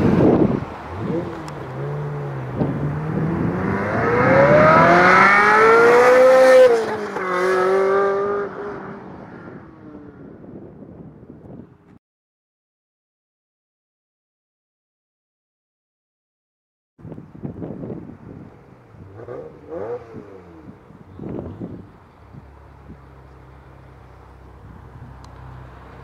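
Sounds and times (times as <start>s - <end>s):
sports car engine accelerating: 0.0s - 10.2s, 18.4s - 26.0s.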